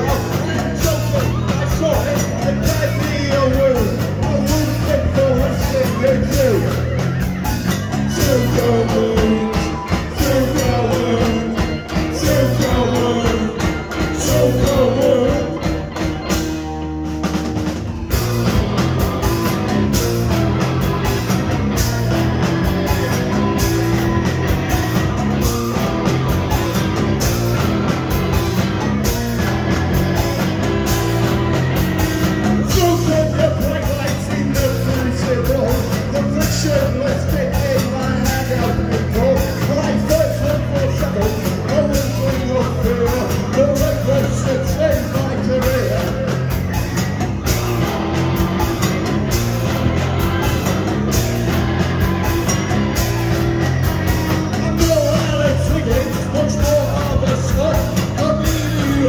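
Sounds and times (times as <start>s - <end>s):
person singing lead vocal: 0.0s - 7.0s, 7.9s - 16.3s, 32.6s - 46.4s, 54.5s - 59.0s
live rock band playing: 0.0s - 59.0s.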